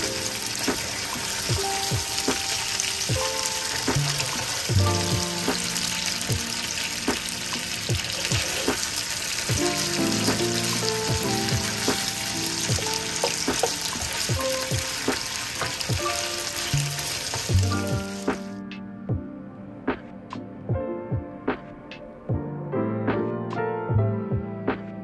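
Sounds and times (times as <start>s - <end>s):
meat sizzling in a pan: 0.0s - 18.5s
soft background music with beat: 0.0s - 25.0s.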